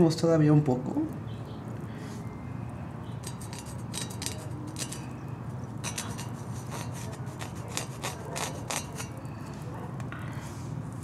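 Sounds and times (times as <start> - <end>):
fingers scraping metal grill: 3.1 - 9.8.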